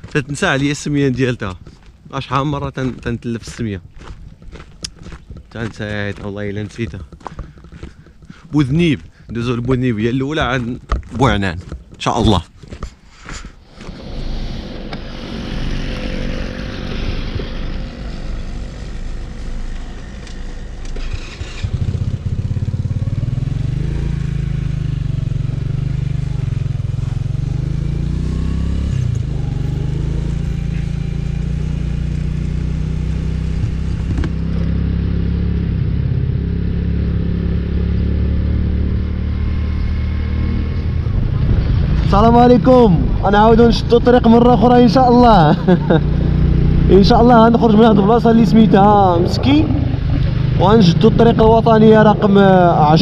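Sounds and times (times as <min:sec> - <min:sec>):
motorcycle engine running: 0:03.9 - 0:12.0, 0:13.7 - 0:53.0
rushing noise: 0:13.6 - 0:22.0, 0:39.2 - 0:53.0.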